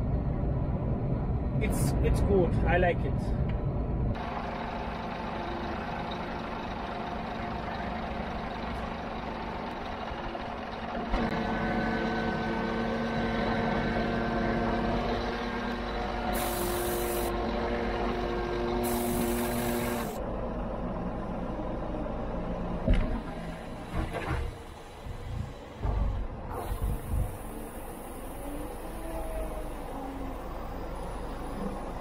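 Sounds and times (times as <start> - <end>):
engine whine: 0.0 - 32.0
diesel engine idling: 3.3 - 32.0
air hisses: 16.3 - 17.3, 18.8 - 20.2.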